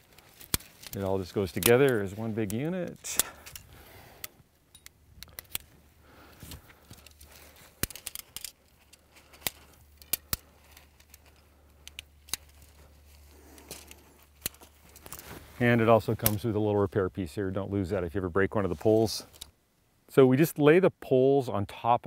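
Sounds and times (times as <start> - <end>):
tent poles clicking and rattling: 0.0 - 16.6, 18.7 - 19.6
quiet handling noise: 0.0 - 17.9.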